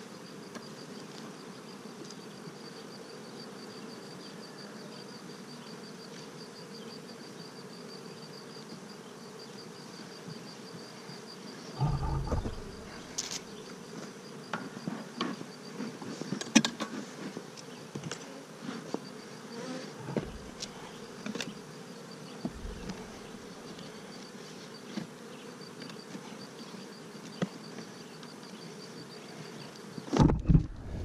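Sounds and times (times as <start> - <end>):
bees buzzing: 5.4 - 14.4, 18.4 - 31.0
loud bump and rustle: 11.8 - 13.4, 20.0 - 20.8.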